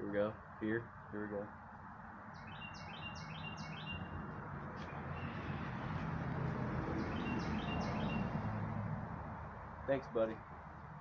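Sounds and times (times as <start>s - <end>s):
outdoor background hiss: 0.0s - 11.0s
songbird chirping: 2.2s - 6.1s, 6.8s - 8.6s.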